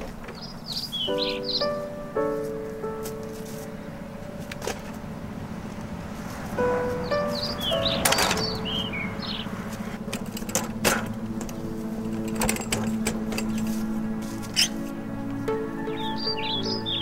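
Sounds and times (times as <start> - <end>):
wheelchair metal frame clanking: 4.4 - 5.1, 7.4 - 14.9.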